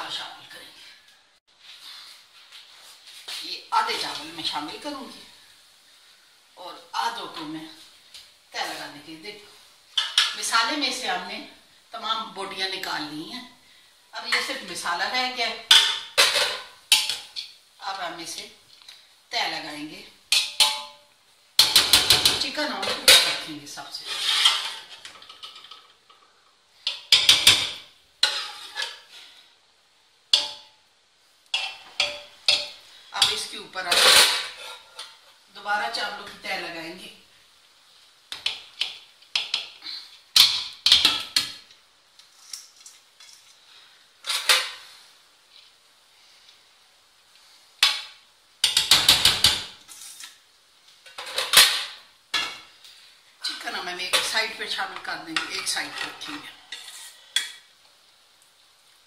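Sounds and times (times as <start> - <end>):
metal ladle clinking on pots: 10.0 - 10.4, 15.7 - 17.5, 20.3 - 21.0, 24.3 - 26.2, 30.3 - 30.7, 31.5 - 35.2.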